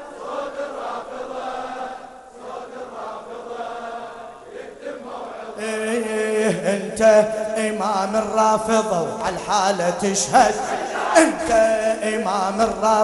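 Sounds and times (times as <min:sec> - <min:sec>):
men chanting together: 0:00.0 - 0:13.0.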